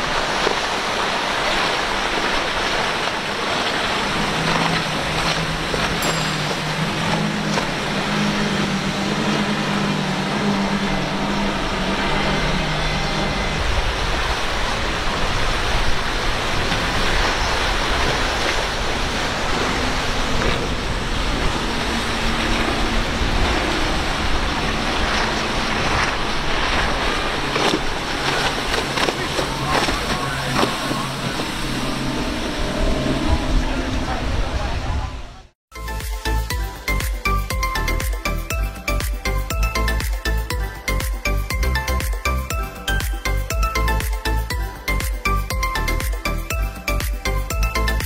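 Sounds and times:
water spray rushing: 0.0 - 33.7
boat engine drone: 0.0 - 48.0
wind: 0.0 - 48.0.

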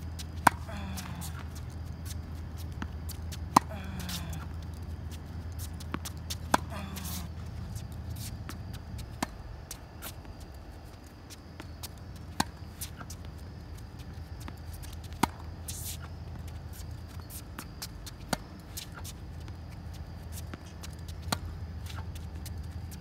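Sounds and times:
footwork scuffs on hard court: 0.0 - 23.0
steady low hum: 0.0 - 23.0
tennis racket hitting ball: 0.4 - 1.4, 6.0 - 7.3.

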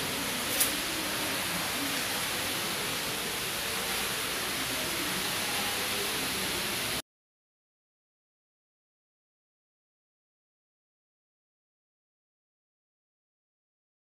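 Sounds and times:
steady hissing noise: 0.0 - 7.0.

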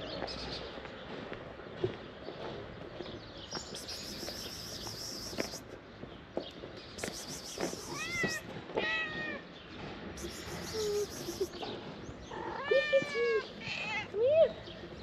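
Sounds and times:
cat meowing: 7.9 - 9.4.

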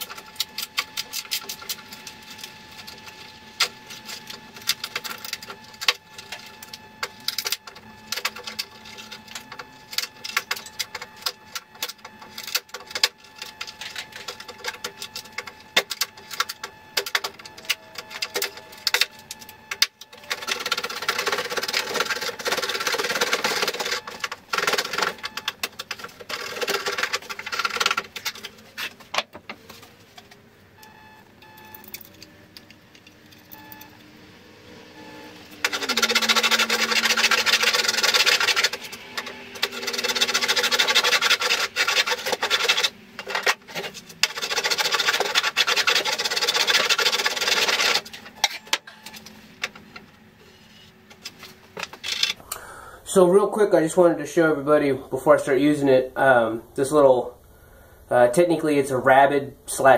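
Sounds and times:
scraping strokes across wood: 35.6 - 48.6.

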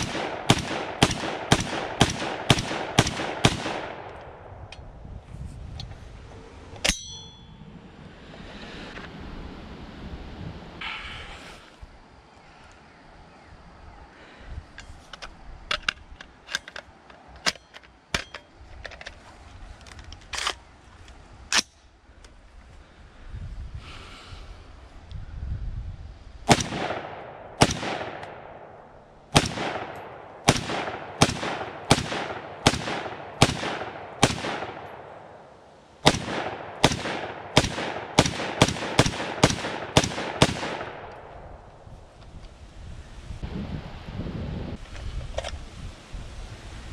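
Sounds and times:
rifle shots with echo: 0.0 - 4.6, 26.5 - 41.4
rifle handling clicks: 14.8 - 19.2, 19.8 - 22.4.

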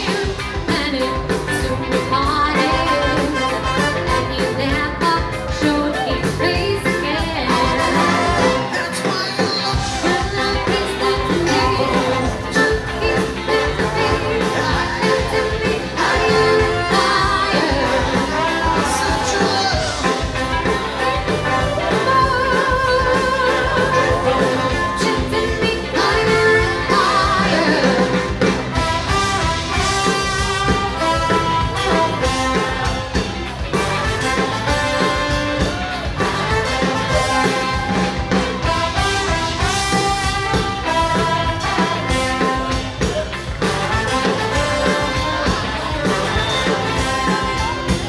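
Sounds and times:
person singing: 0.0 - 28.6
live band playing dance song: 0.0 - 48.0.

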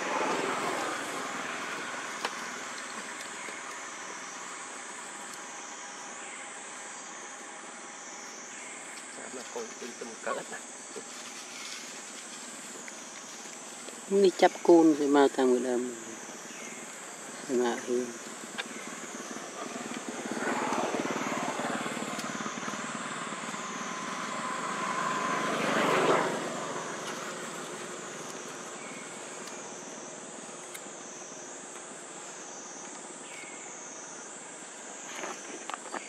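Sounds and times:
passing aircraft engine: 0.0 - 4.7, 18.2 - 30.0
pulsing insect chorus: 0.0 - 36.0.

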